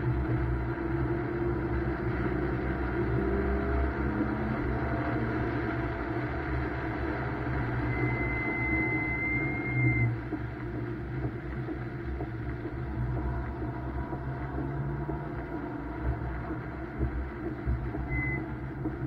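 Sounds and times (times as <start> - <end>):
car engine under load: 0.0 - 19.0
thin high whistle: 7.9 - 10.1.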